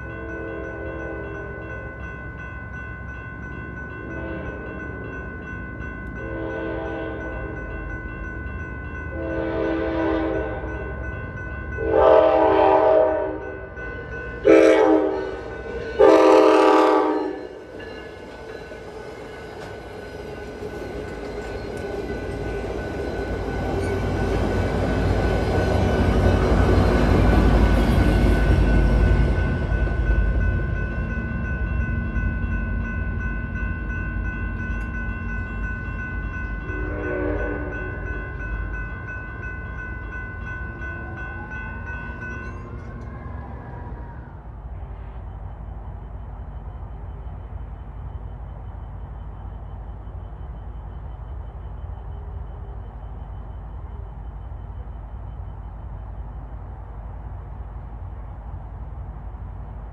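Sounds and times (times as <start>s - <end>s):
crossing bells ringing: 0.0s - 56.5s
train rumbling past: 0.0s - 59.9s
train horn: 0.1s - 1.5s, 4.1s - 4.7s, 6.2s - 7.5s, 9.1s - 10.8s, 11.8s - 13.6s, 14.4s - 15.4s, 16.0s - 17.6s, 36.6s - 38.2s.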